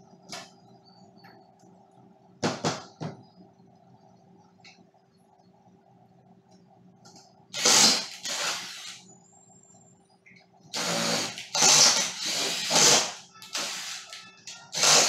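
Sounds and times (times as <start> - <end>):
cordless drill driving screws: 7.6 - 9.0, 10.8 - 14.1, 14.7 - 15.0.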